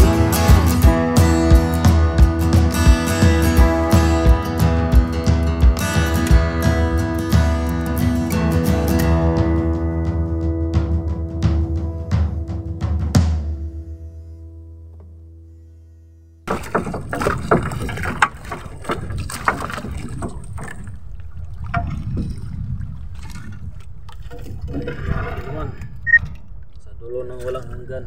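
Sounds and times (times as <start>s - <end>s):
background music with drums: 0.0s - 13.7s
knocks on boat: 16.5s - 20.9s
water dripping: 16.5s - 24.6s
fishing net splashing: 16.5s - 24.7s.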